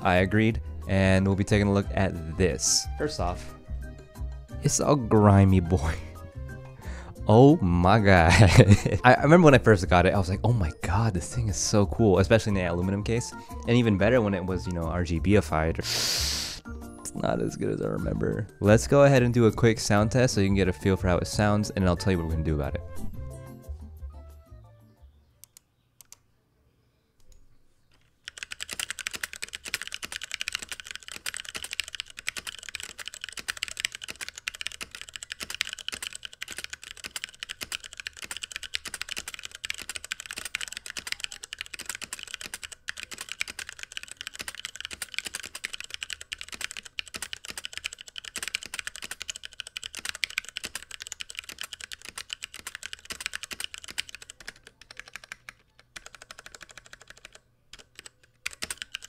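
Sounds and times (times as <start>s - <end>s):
mechanical keyboard typing: 28.0s - 59.0s.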